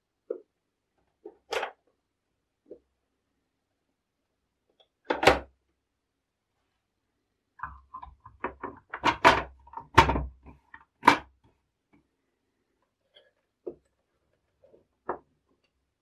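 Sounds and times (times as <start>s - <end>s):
plastic clicks and knocks: 7.6s - 11.5s.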